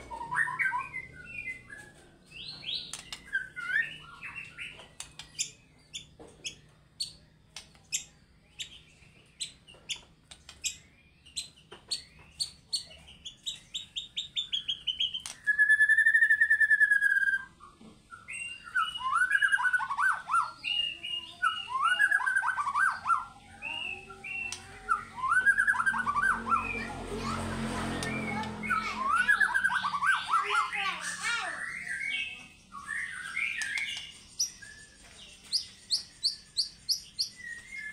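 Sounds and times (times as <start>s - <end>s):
bird singing: 0.0s - 37.9s
buzzy bird trill: 18.5s - 37.9s.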